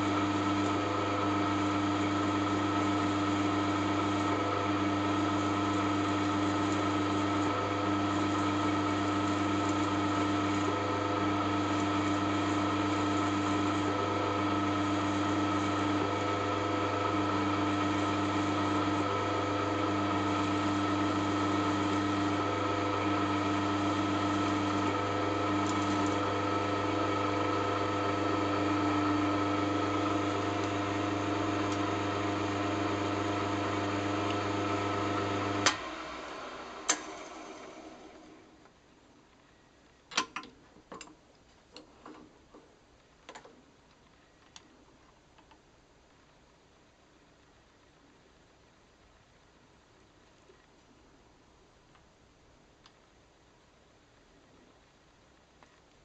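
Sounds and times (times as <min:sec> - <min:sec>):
drill boring through metal: 0:00.0 - 0:38.2.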